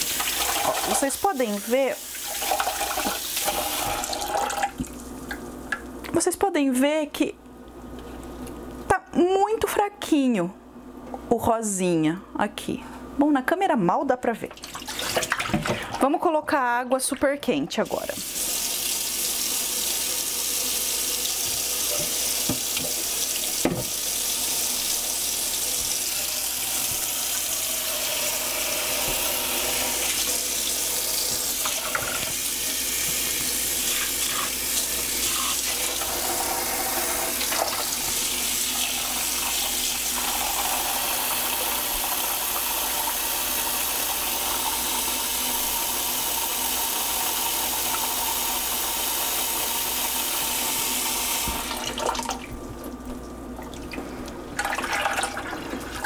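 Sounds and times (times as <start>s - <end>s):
tap water running into sink: 0.0s - 5.9s, 18.0s - 54.0s, 54.6s - 56.0s.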